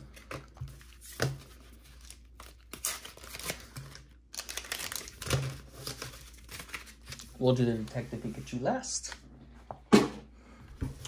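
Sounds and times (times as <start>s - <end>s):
foil wrapper crinkling and tearing: 1.8s - 7.5s.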